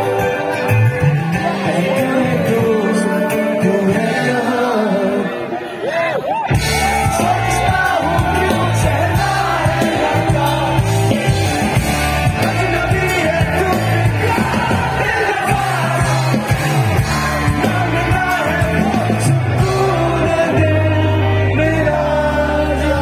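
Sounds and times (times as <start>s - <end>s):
rock band playing live: 0.0s - 5.7s, 6.3s - 23.0s
lead vocal singing: 1.2s - 6.0s, 6.6s - 23.0s
steady bass line: 6.5s - 23.0s.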